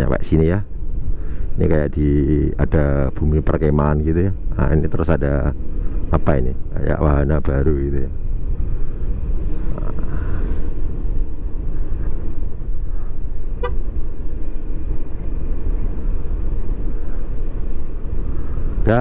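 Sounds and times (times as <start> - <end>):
wind rumble on microphone: 0.0 - 19.0
scooter horn beep: 13.6 - 13.8.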